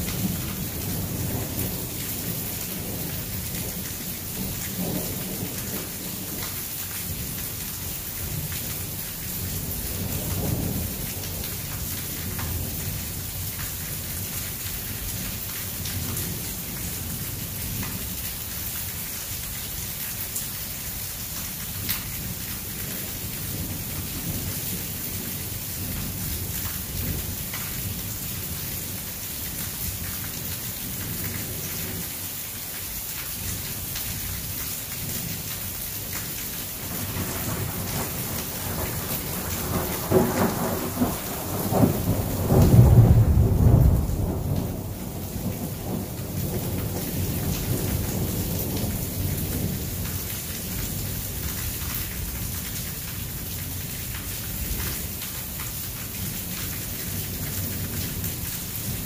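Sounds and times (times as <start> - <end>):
rain on hard surfaces: 0.0 - 59.0
close raindrop ticks: 10.3 - 17.0, 44.0 - 59.0
low rumbling thunder: 36.9 - 50.1.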